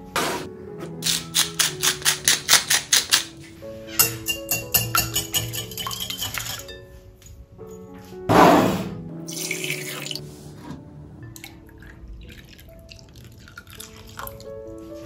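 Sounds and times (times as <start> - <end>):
light music: 0.0 - 15.0
milk pouring into a bowl: 11.4 - 14.5.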